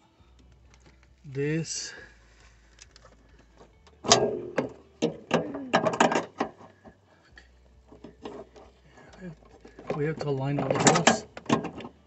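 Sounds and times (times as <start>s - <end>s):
metal clicking and knocking: 2.8s - 6.8s, 7.9s - 12.0s.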